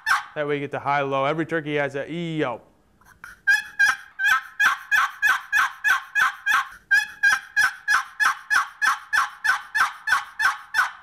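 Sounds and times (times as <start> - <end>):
turkey box call yelping: 0.0 - 0.5, 3.2 - 11.0.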